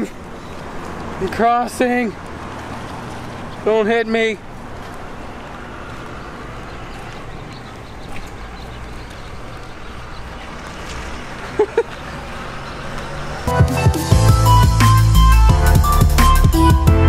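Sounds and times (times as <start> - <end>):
street background noise: 0.0 - 16.9
electronic music with heavy beat: 13.5 - 17.0.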